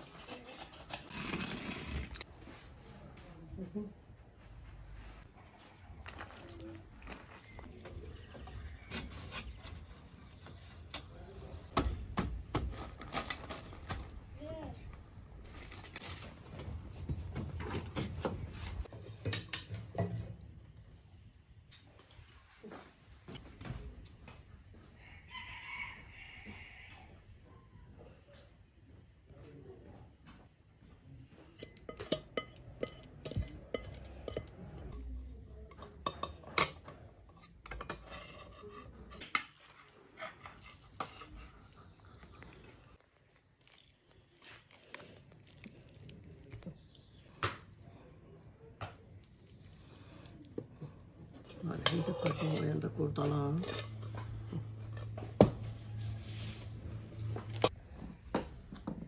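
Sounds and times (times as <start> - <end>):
metal spoon clinking in pot: 31.6 - 35.0
knife scraping on plate: 37.7 - 41.9, 51.8 - 52.9
embers crackling and popping: 39.2 - 51.9.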